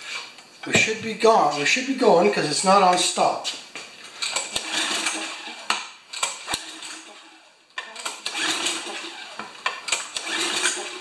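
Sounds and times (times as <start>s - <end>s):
recoil starter pulled: 4.2s - 11.0s
small engine whirring over: 10.1s - 11.0s.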